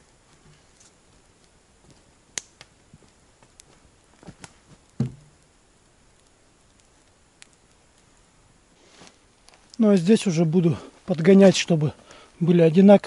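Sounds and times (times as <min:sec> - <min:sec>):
heavy wooden thud: 0:05.0 - 0:05.3
wood knocking and clicking: 0:05.0 - 0:05.3.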